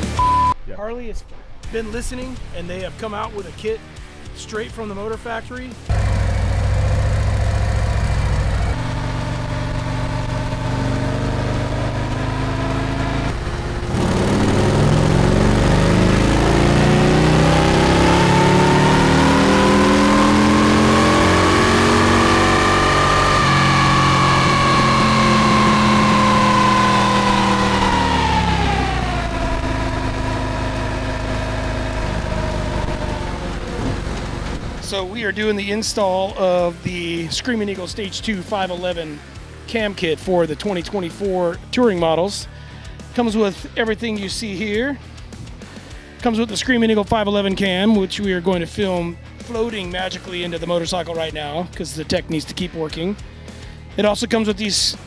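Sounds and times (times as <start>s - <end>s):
motorcycle engine revving on dynamometer: 5.9s - 35.0s.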